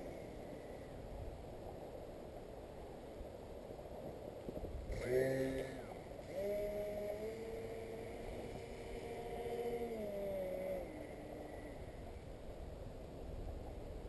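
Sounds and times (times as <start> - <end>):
electric model plane motors humming: 0.0 - 0.9, 4.8 - 12.4.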